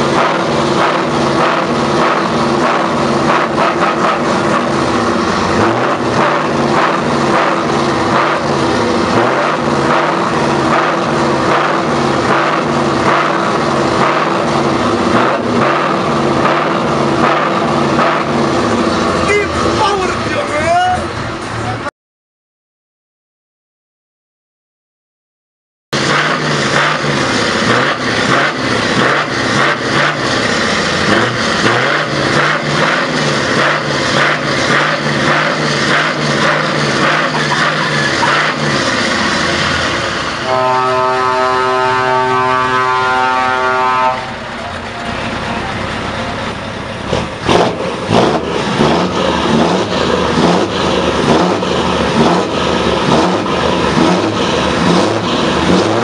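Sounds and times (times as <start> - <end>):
sharp exhaust cracks: 0.0 - 20.7, 26.0 - 43.2
truck engine running: 0.0 - 21.9, 25.9 - 56.0.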